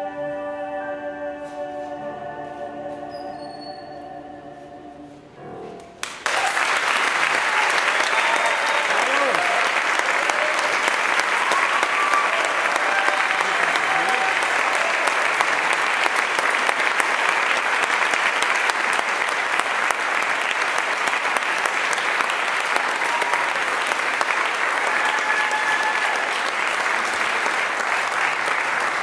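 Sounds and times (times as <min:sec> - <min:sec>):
audience applauding: 0:06.0 - 0:29.0.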